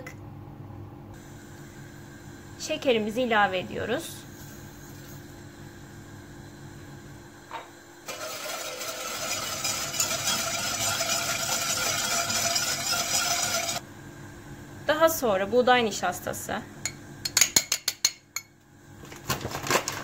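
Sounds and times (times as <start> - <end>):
low room hum: 0.0 - 20.0
whisk beating in metal pot: 8.1 - 13.8.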